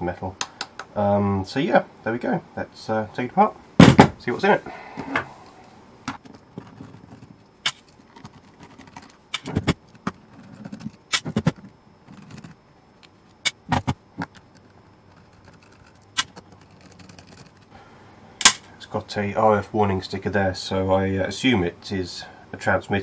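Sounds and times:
case knocks: 0:03.8 - 0:04.2.

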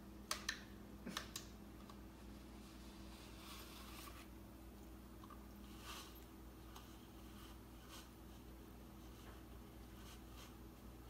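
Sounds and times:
faint steady hum: 0:00.0 - 0:11.0
fur rubbing on plastic bristles: 0:02.4 - 0:04.4.

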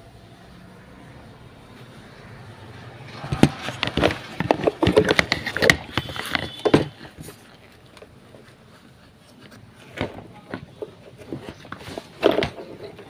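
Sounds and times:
plastic and metal clicks and scrapes: 0:03.1 - 0:13.0.

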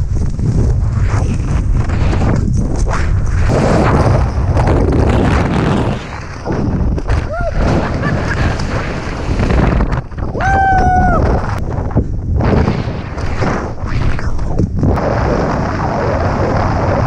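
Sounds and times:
wind buffeting microphone: 0:00.0 - 0:17.0
person whooping: 0:07.3 - 0:07.7, 0:10.4 - 0:11.4.

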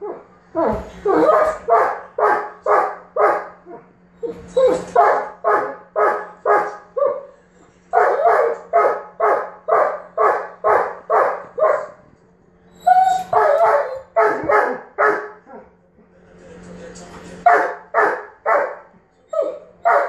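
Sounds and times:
dog barking: 0:01.1 - 0:03.6, 0:04.9 - 0:07.3, 0:08.0 - 0:12.0, 0:13.3 - 0:15.4, 0:17.5 - 0:18.9.

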